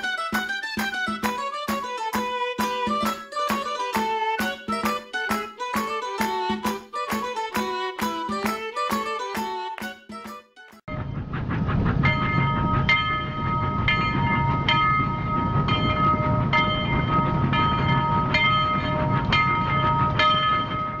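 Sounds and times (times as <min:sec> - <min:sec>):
rail clicks: 0:00.0 - 0:21.0
train rumbling on track: 0:00.0 - 0:21.0
steady high tone: 0:10.9 - 0:21.0.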